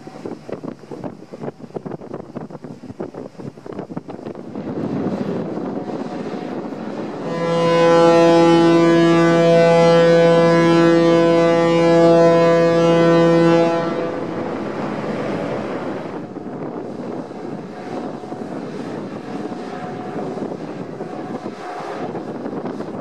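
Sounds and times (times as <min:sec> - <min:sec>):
wind on microphone: 0:00.0 - 0:23.0
ferry horn blast: 0:05.8 - 0:16.2.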